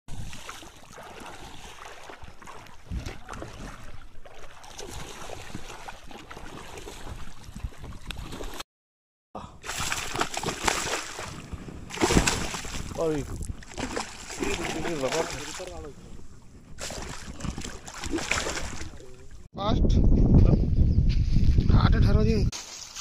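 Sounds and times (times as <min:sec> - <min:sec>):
fish thrashing water splashing: 0:00.1 - 0:08.6, 0:09.6 - 0:15.8, 0:16.8 - 0:19.3.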